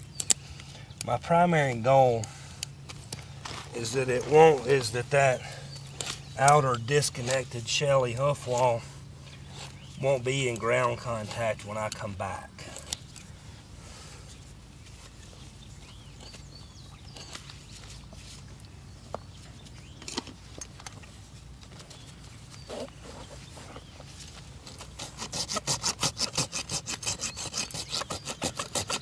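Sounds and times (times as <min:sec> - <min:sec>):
hoof rasp scraping: 0:03.4 - 0:13.0, 0:21.9 - 0:29.0.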